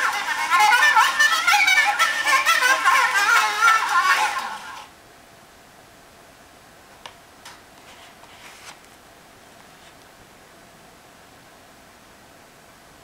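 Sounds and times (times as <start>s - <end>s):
record player music: 0.0s - 4.9s
low steady hiss: 0.0s - 13.0s
faint clicks and paper rustles: 7.0s - 10.2s.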